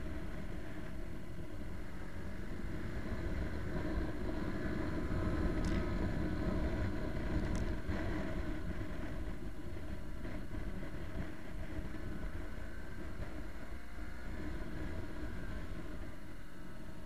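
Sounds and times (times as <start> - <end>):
motorcycle engine running: 0.0 - 17.0
wind buffeting microphone: 0.0 - 17.0.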